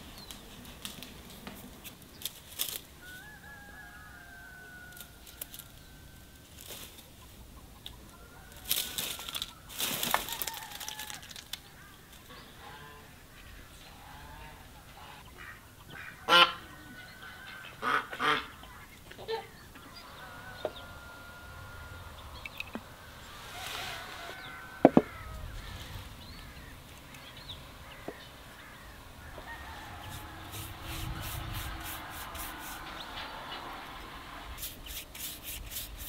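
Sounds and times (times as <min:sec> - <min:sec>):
broom straw rustling: 0:05.0 - 0:07.2, 0:08.5 - 0:11.6, 0:22.8 - 0:36.0
poultry calling: 0:11.7 - 0:34.5.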